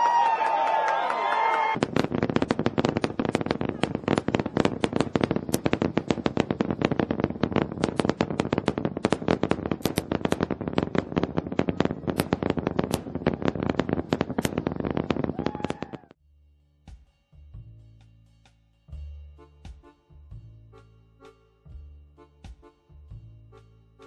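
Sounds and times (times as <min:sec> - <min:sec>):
rocket engines crackling: 0:01.2 - 0:16.2.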